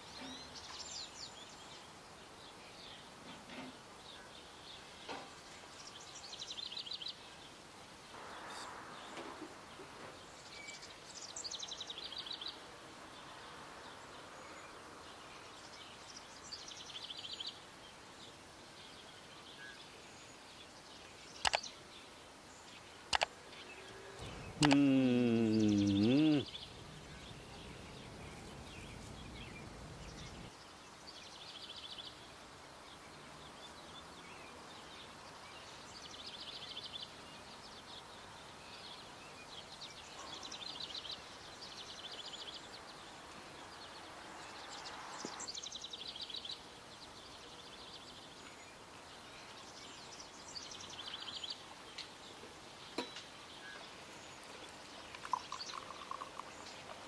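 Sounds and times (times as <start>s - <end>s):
faint steady hiss: 0.0s - 57.0s
songbirds singing: 0.0s - 57.0s
tea pouring into a glass: 54.4s - 57.0s.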